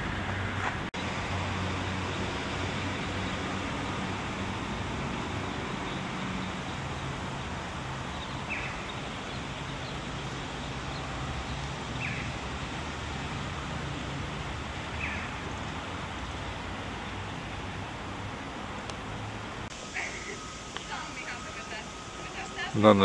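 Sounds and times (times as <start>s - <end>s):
outdoor town ambience low hum: 0.0s - 23.0s
high bird chirps: 5.8s - 12.4s.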